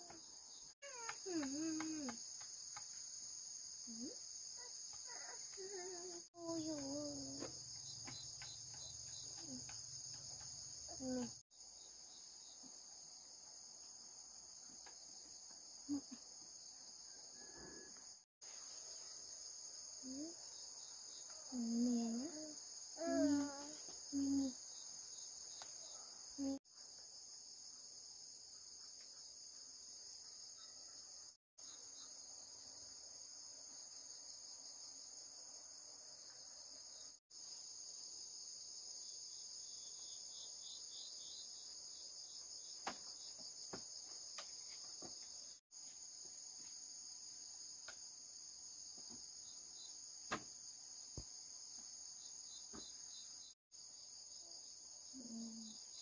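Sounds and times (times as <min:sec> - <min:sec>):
insect chorus trilling: 0:00.0 - 0:13.3, 0:14.1 - 0:56.0.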